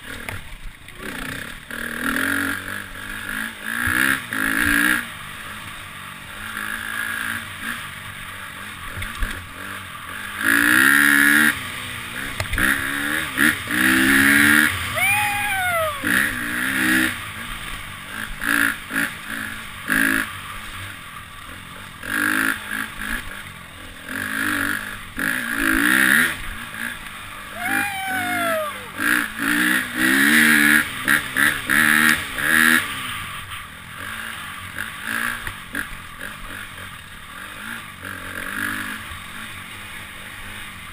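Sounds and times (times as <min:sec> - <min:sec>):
dirt bike engine revving: 0:01.0 - 0:08.0, 0:10.1 - 0:20.8, 0:21.8 - 0:33.4
rider whooping: 0:14.8 - 0:17.0, 0:27.4 - 0:29.5.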